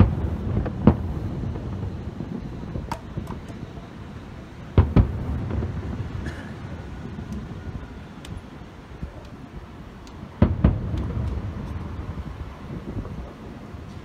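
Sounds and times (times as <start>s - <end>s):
firework booms with rumbling echo: 0.0s - 7.9s, 10.2s - 13.9s.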